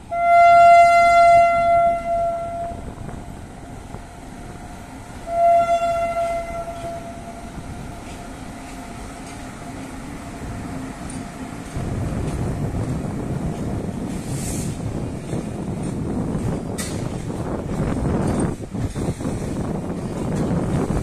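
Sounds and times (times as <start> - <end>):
locomotive horn blasts: 0.0 - 2.9, 5.2 - 7.6
train rumbling past: 0.0 - 21.0.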